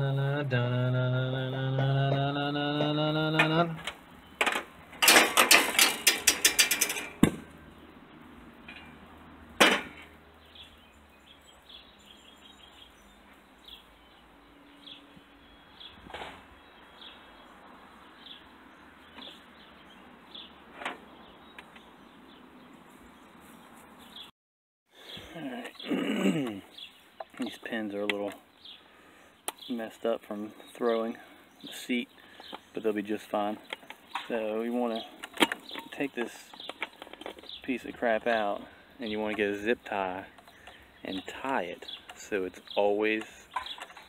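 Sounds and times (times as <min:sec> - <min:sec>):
sharp knocks: 0:01.5 - 0:07.5, 0:09.6 - 0:10.1.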